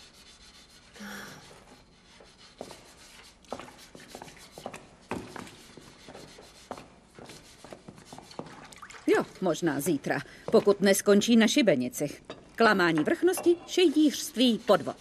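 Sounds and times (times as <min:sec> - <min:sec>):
rubbing and scraping on wood: 0:00.0 - 0:08.7.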